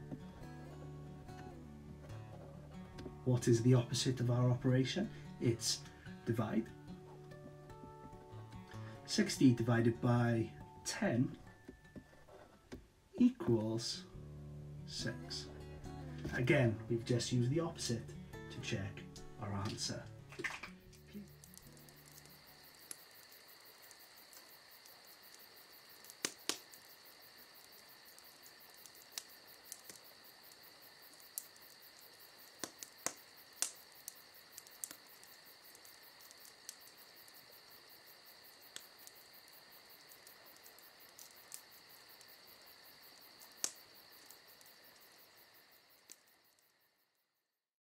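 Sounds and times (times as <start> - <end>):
high-pitched insect trill: 20.7 - 47.5
sharp clicks: 26.0 - 26.9, 28.1 - 30.6, 31.2 - 37.0, 43.4 - 44.4.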